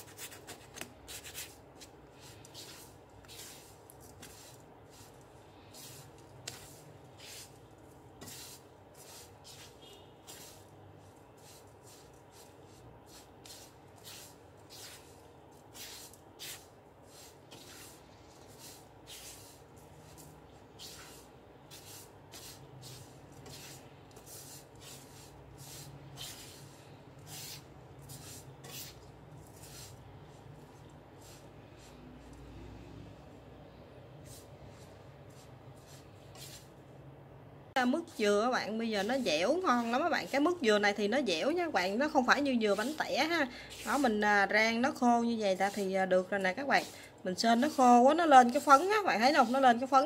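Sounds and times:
spatula scraping a pan: 8.2 - 10.7, 11.4 - 30.0.

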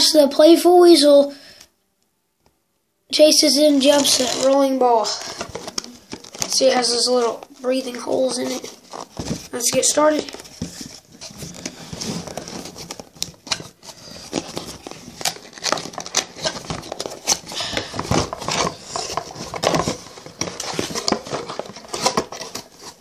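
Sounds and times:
packaging crinkling: 3.9 - 23.0
cardboard box being opened: 4.0 - 6.6, 8.2 - 23.0.

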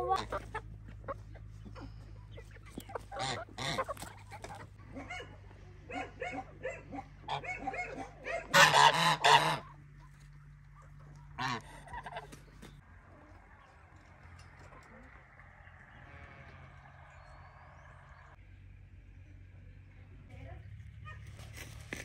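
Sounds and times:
geese honking: 0.0 - 12.8.

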